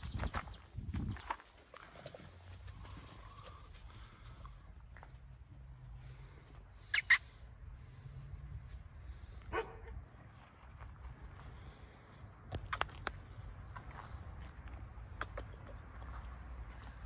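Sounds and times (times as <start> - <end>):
dogs barking: 9.4 - 10.0.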